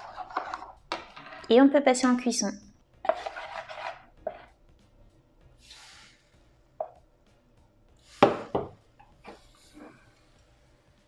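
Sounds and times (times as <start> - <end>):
spoon stirring batter in a bowl: 0.0 - 1.5, 3.0 - 4.5.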